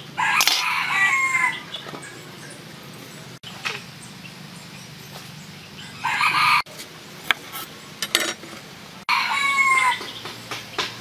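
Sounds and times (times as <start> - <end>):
rooster crowing: 0.2 - 1.7, 6.0 - 6.7, 9.1 - 10.2.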